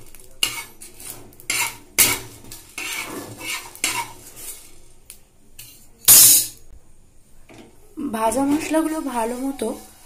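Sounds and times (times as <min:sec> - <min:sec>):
metal spatula scraping a frying pan: 0:00.4 - 0:04.9.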